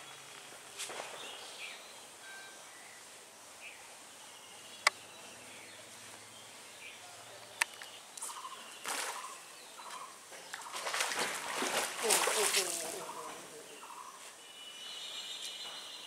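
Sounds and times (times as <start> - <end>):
birds calling: 2.8 - 16.0
fish splashing in water: 10.6 - 13.2.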